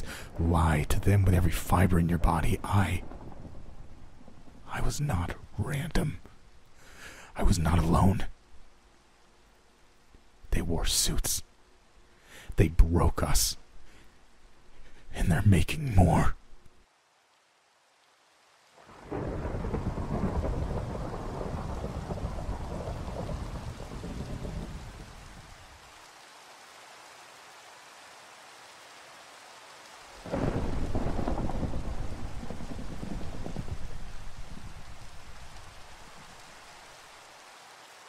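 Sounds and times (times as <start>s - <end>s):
thunder rolling: 0.0s - 4.9s, 19.0s - 25.2s, 30.2s - 36.3s
steady rain falling: 0.0s - 38.0s.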